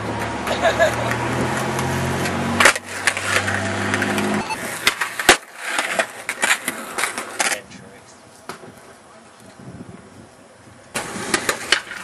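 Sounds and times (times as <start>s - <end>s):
skateboard clack: 0.0s - 7.7s, 10.9s - 12.0s
skateboard wheels rolling: 0.0s - 12.0s.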